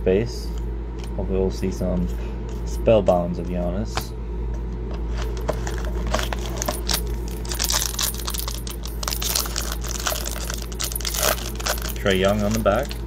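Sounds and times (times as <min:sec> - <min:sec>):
foil pack crinkling and tearing: 0:05.2 - 0:13.0.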